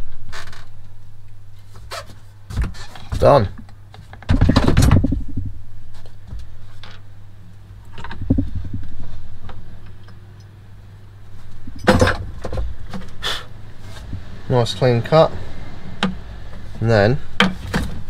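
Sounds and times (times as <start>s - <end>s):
low hum: 3.4s - 17.4s.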